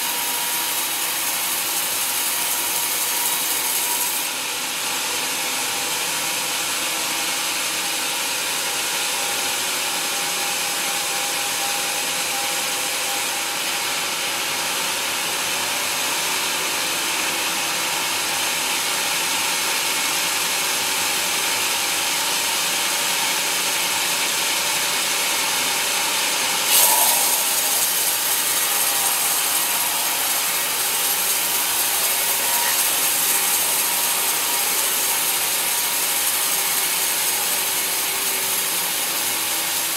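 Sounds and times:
band saw cutting log: 0.0 - 6.8, 23.2 - 39.9
saw jolt: 26.7 - 35.0.

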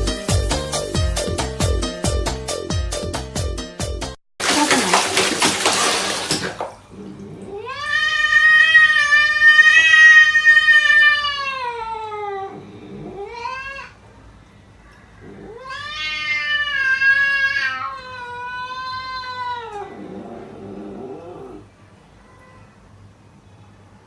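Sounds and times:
water splashing in a plastic basin: 4.4 - 7.5
cat yowling: 7.4 - 14.0, 15.2 - 20.3.

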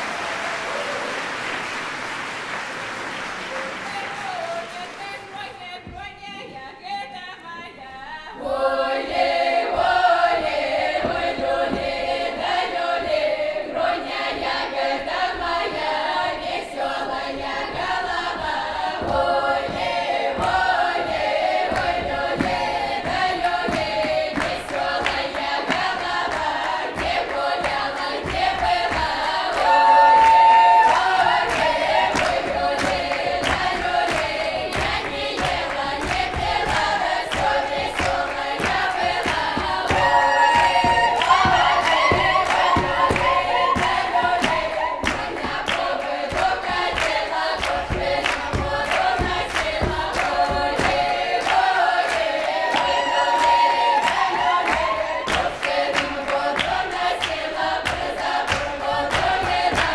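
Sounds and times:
hand claps: 0.0 - 6.1, 20.4 - 59.9
folk choir singing: 4.2 - 59.9.

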